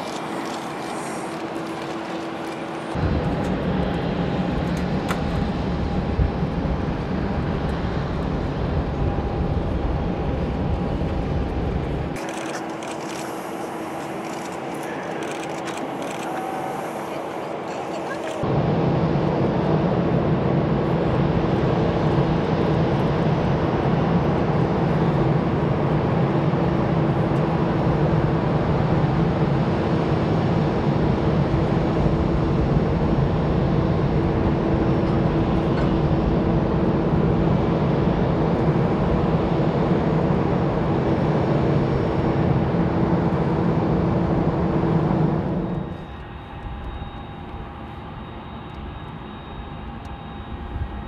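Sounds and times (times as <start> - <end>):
jet engines roaring: 0.0 - 51.0.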